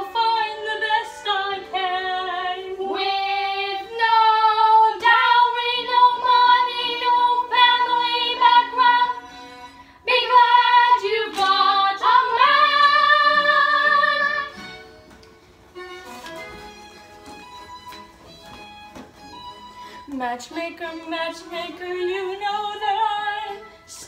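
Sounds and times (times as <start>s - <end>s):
girls singing a show tune: 0.0s - 14.6s, 20.1s - 24.0s.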